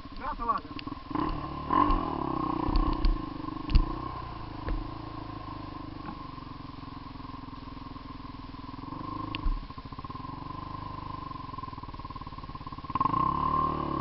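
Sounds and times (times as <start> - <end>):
quad bike engine idling: 0.0 - 14.0
short thumps: 4.6 - 5.0, 9.4 - 9.7.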